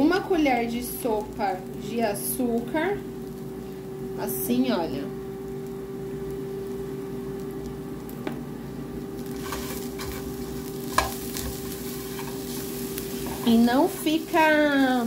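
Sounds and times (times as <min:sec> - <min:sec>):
onions sizzling in a frying pan: 0:00.0 - 0:08.2, 0:08.9 - 0:15.0
low hum: 0:00.0 - 0:15.0
spatula scraping a pan: 0:09.4 - 0:14.2.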